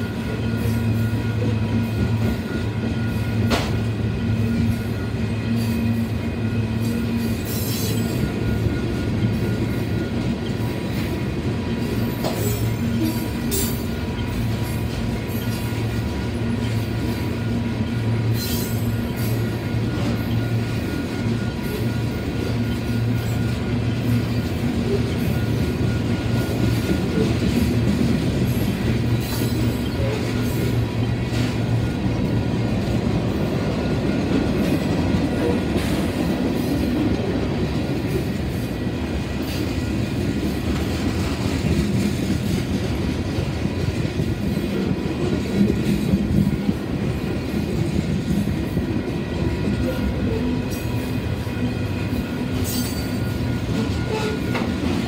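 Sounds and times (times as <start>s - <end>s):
wheel squeals: 0.0s - 27.6s, 28.6s - 32.2s, 49.6s - 55.0s
steel wheels rumbling on rail: 0.0s - 55.0s.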